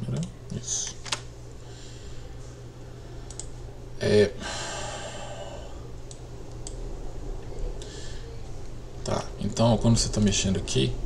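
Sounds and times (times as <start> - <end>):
faint computer clicking: 3.2 - 3.6, 6.0 - 6.8
breathy hiss: 4.4 - 5.9.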